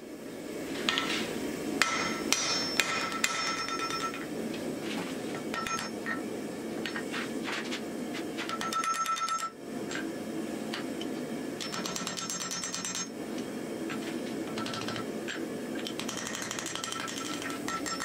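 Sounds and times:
hammer striking metal on anvil: 1.8s - 4.3s, 5.4s - 6.2s, 16.0s - 18.0s.

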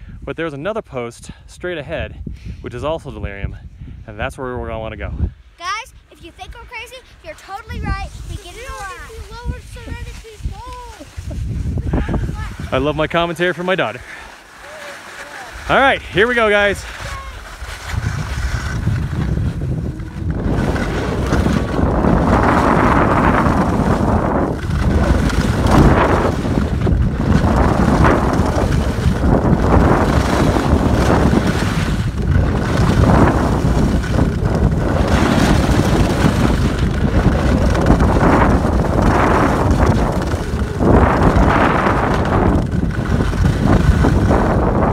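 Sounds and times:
wind buffeting microphone: 1.2s - 14.3s, 15.4s - 44.9s
skis scraping on packed snow: 6.1s - 44.9s.

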